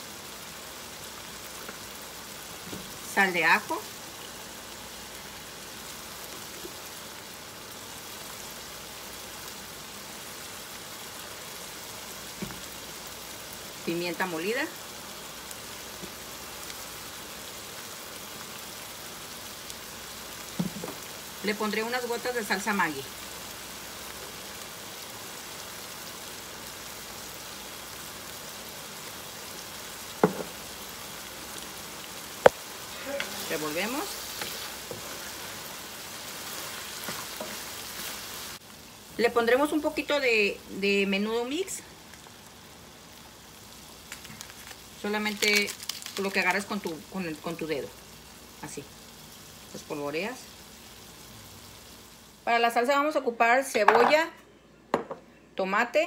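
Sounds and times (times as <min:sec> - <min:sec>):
meat sizzling in a frying pan: 0:00.0 - 0:53.1.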